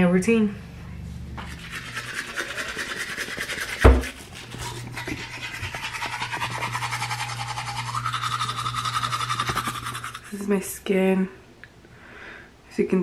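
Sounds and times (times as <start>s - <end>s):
toothbrush scrubbing teeth: 1.4s - 10.5s
sharp knock: 3.8s - 4.1s.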